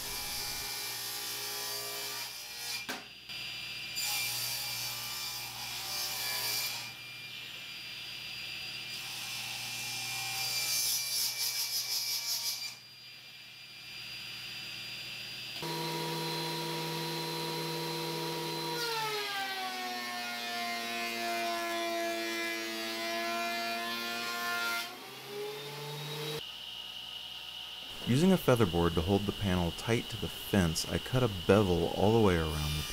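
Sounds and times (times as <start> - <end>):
table saw humming: 0.0 - 2.0, 15.6 - 32.9.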